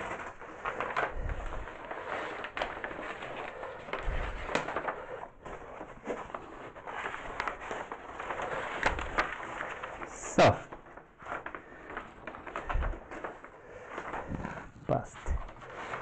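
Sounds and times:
paper rustling and crackling: 0.0 - 16.0.

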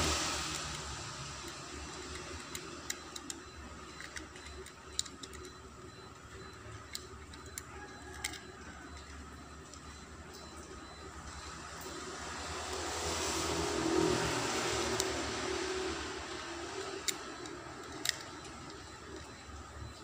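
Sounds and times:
low background hum: 0.0 - 13.8
small plastic clicks and taps: 16.7 - 19.3.

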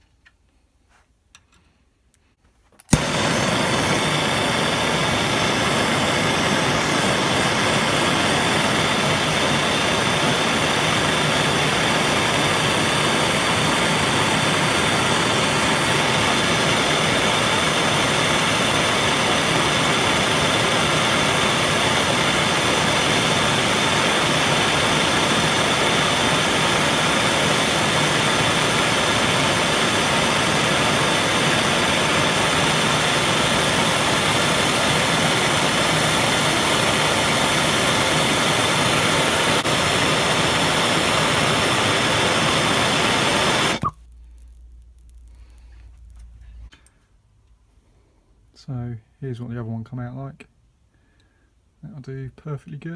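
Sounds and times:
gas torch hissing: 2.9 - 46.9.

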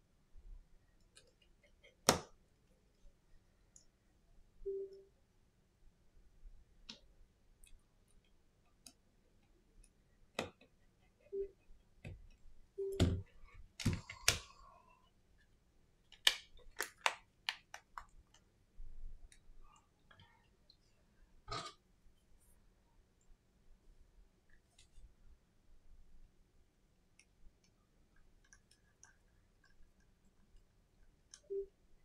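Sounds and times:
small clicks and taps: 27.1 - 31.5.

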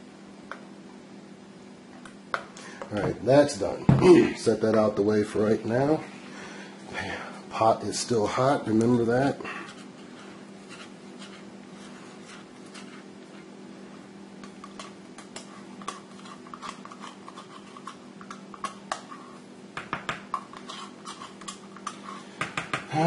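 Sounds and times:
spoon scraping plastic cups: 9.6 - 13.5, 14.4 - 19.4, 20.3 - 22.4.

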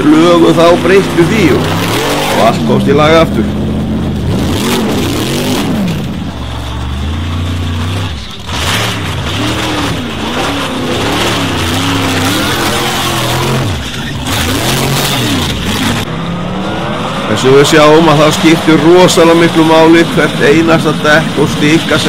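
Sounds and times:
tyres churning sand: 0.0 - 3.5, 4.3 - 22.0
racing engine revving: 0.0 - 22.0.

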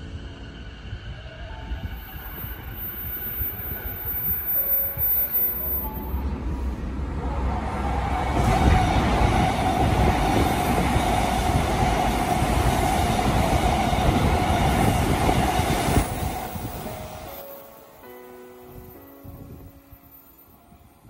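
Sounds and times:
train wheels rushing on rail: 0.0 - 17.6.

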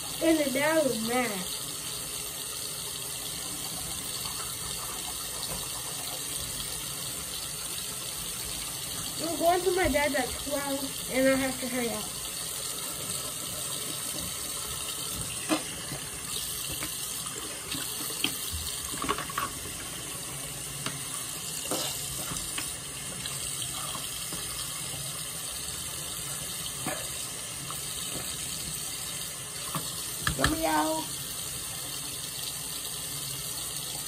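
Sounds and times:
tap running into sink: 13.0 - 20.0, 20.7 - 25.0, 26.7 - 28.6, 29.6 - 30.9.

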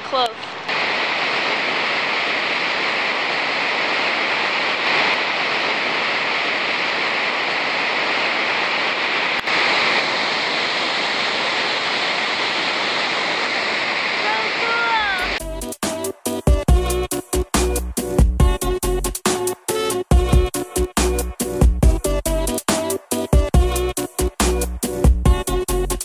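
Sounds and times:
thundering waterfall: 0.0 - 15.5.

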